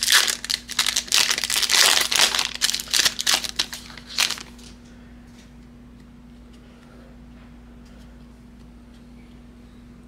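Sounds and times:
card pack wrapper crinkling: 0.0s - 4.7s.

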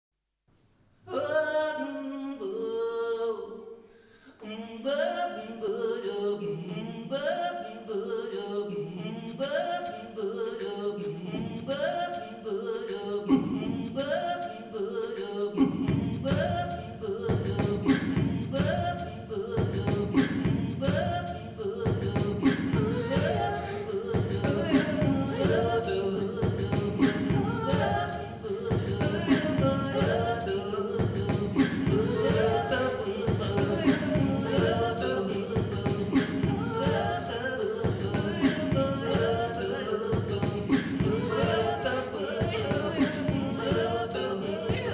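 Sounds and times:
man singing looped vocals: 4.8s - 44.9s
beatboxed percussion clicks: 15.0s - 35.0s, 35.6s - 39.5s, 40.2s - 41.7s, 42.4s - 44.1s.

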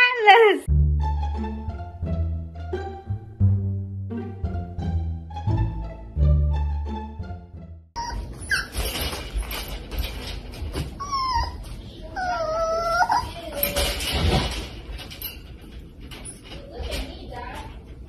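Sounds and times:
puppy whining and whimpering: 8.0s - 9.1s, 10.8s - 13.8s
rustling and knocking: 8.2s - 11.8s.

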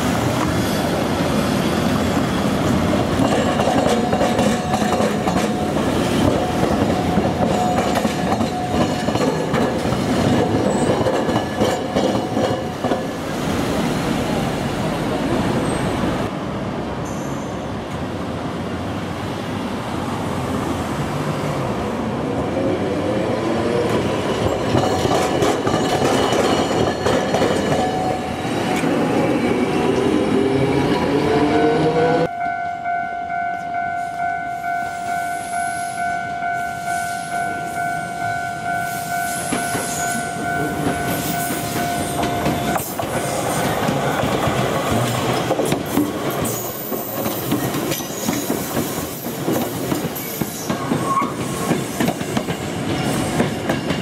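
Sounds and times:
train wheel clatter: 3.0s - 13.2s, 24.3s - 27.9s, 42.2s - 54.0s
level-crossing alarm ringing: 32.3s - 43.1s.

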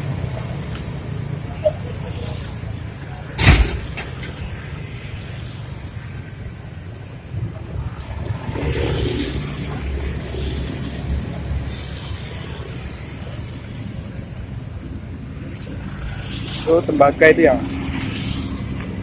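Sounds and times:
low rumble of road traffic: 0.0s - 19.0s
vehicle passing: 7.2s - 14.7s, 15.6s - 19.0s.

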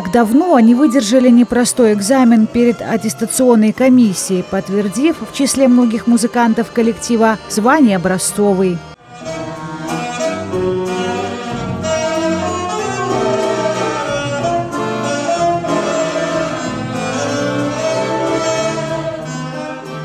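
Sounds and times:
hammered dulcimer ensemble playing: 0.3s - 20.0s.

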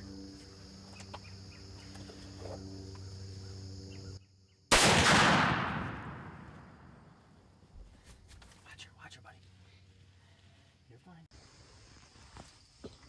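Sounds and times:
rifle shot: 4.7s - 7.1s.

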